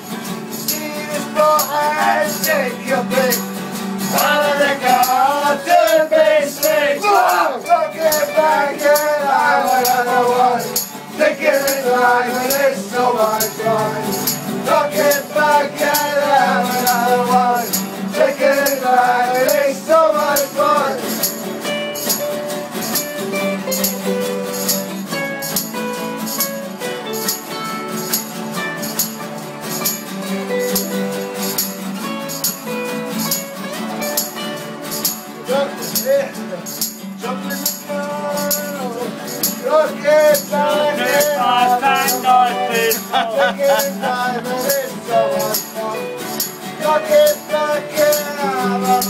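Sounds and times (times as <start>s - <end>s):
acoustic guitars strummed: 0.0s - 49.0s
hand percussion rattling: 0.0s - 49.0s
men singing together: 0.7s - 21.4s, 37.2s - 49.0s.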